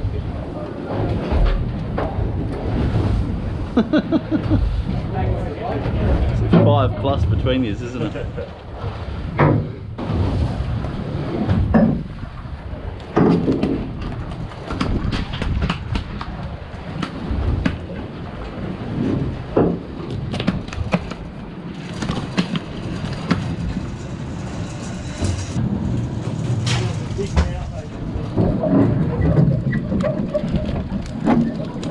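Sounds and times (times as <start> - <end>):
steady low rumble: 0.0 - 13.2, 21.2 - 31.2.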